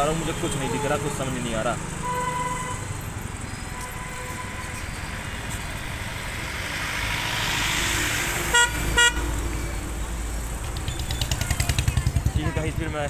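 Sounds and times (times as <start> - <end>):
road noise: 0.0 - 13.0
loud vehicle horn beep: 2.0 - 2.9, 3.8 - 4.8, 8.5 - 9.3
scooter engine: 5.1 - 13.0.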